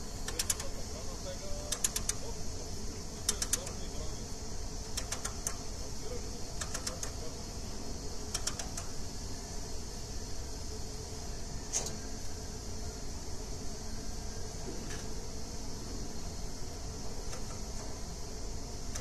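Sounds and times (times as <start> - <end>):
steady low hum: 0.0 - 19.0
tensioning mechanism clicking: 0.2 - 0.7, 1.7 - 2.2, 3.2 - 3.9, 4.9 - 5.6, 6.6 - 7.2, 8.3 - 9.0, 17.2 - 17.9.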